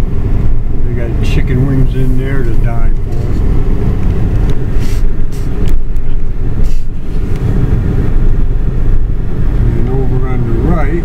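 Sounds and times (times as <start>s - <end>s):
car road and engine rumble: 0.0s - 11.0s.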